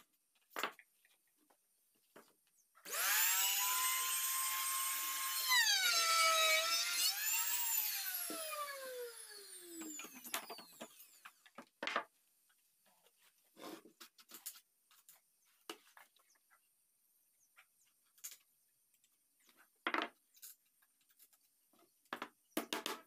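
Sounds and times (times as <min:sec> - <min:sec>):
electric router whining: 0:02.8 - 0:11.4.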